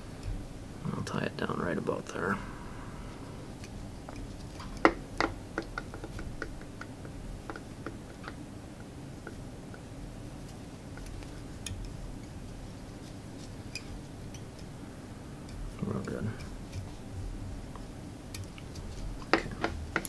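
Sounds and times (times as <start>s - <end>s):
thread wrapping ticks: 15.4s - 20.0s.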